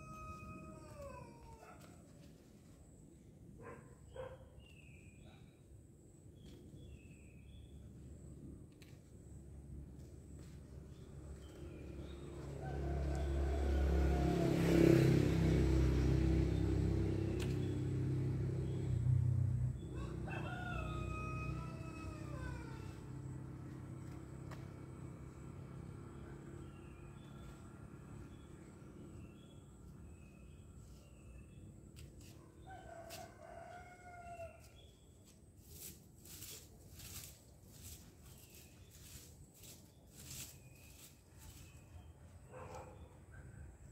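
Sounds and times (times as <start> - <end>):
rooster crowing: 0.0 - 1.8, 12.4 - 15.1, 19.8 - 23.4, 32.6 - 34.7
vehicle engine humming: 8.8 - 32.5.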